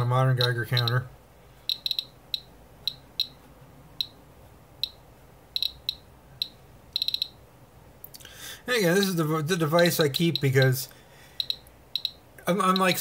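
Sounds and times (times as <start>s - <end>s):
geiger counter clicking: 0.3s - 3.4s, 4.8s - 7.4s, 9.8s - 10.8s, 11.4s - 13.0s.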